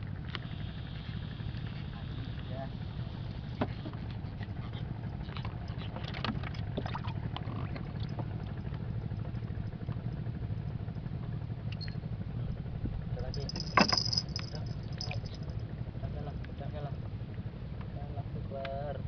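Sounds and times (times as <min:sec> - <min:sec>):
boat engine idling: 0:00.0 - 0:16.0
fishing tackle clicking: 0:13.4 - 0:15.5.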